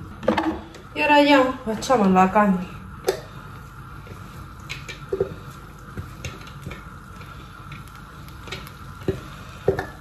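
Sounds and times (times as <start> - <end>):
meat sizzling in a frying pan: 0.0 - 10.0
spatula tapping a container: 9.0 - 10.0.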